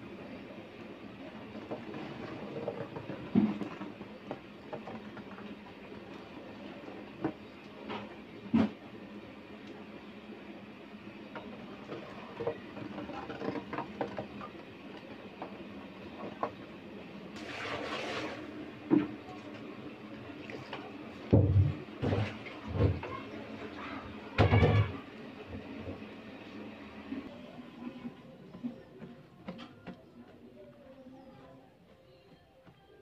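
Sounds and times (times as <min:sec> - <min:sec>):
liquid splashing: 0:17.4 - 0:18.5
dipper stirring liquid: 0:17.4 - 0:19.5.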